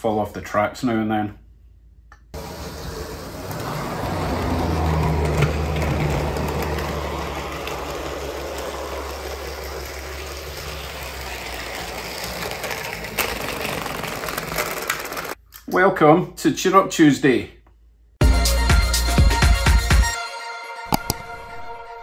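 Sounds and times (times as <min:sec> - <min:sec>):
model train motor humming: 0:02.4 - 0:15.4
man talking: 0:15.7 - 0:17.6.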